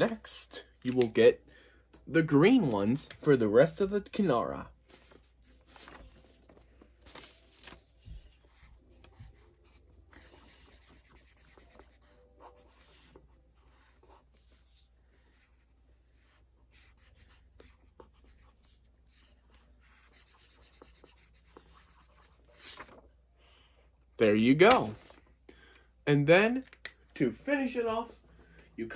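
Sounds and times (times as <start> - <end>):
marker scribbling on paper: 8.5 - 22.7.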